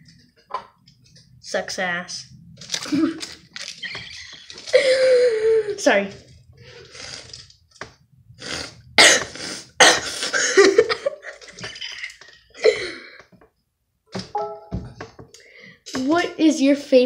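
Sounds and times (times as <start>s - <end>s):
boy coughing: 9.0s - 11.1s.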